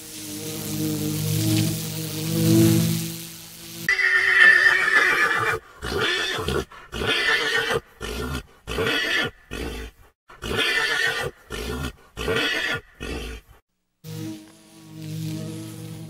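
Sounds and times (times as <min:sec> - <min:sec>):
horse whinnying: 0:03.9 - 0:13.5.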